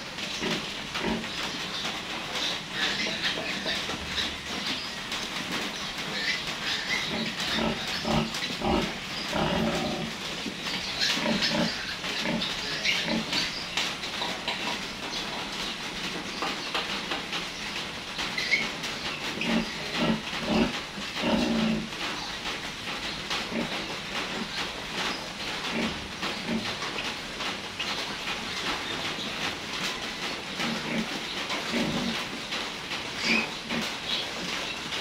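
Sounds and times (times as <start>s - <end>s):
piglets squealing and grunting: 0.2s - 5.0s, 5.9s - 13.7s, 18.4s - 21.9s, 33.1s - 34.2s.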